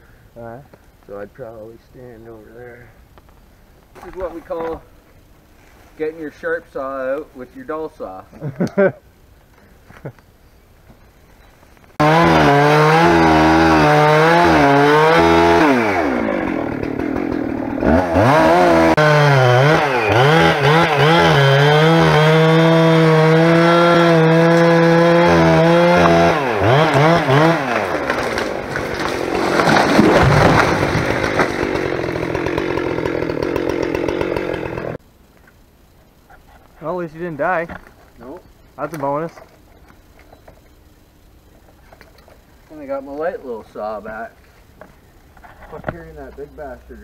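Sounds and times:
chainsaw cutting wood: 12.0 - 35.0.

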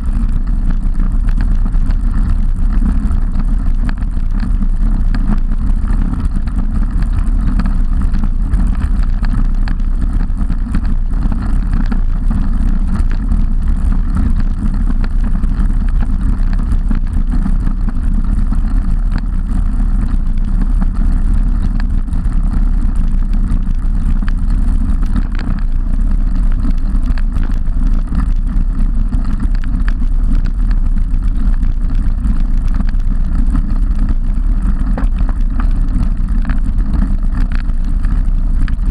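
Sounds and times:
bicycle tyre and road noise: 0.0 - 38.9
wind rumble on microphone: 0.0 - 38.9.

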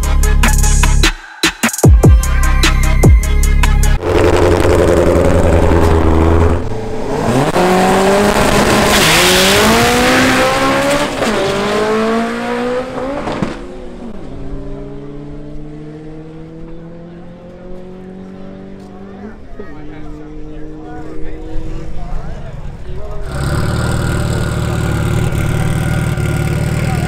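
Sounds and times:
music: 0.0 - 4.0
drag racing car engines revving: 4.0 - 27.0.

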